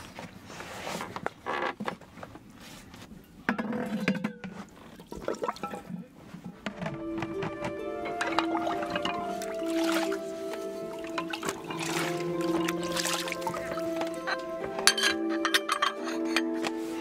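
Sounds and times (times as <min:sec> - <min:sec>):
water sloshing in plastic basin: 0:03.7 - 0:14.8
music: 0:06.7 - 0:17.0
crockery and spoon clinking: 0:06.9 - 0:09.7, 0:10.6 - 0:17.0.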